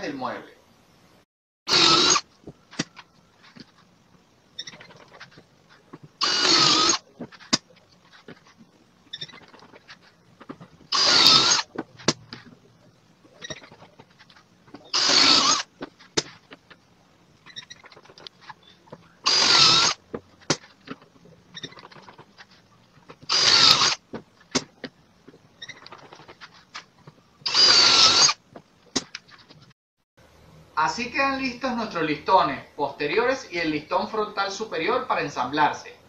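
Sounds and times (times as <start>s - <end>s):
cordless drill drilling: 1.7s - 2.3s, 6.2s - 7.0s, 10.9s - 11.7s, 14.8s - 15.7s, 19.2s - 20.0s, 23.3s - 24.0s, 27.5s - 28.4s.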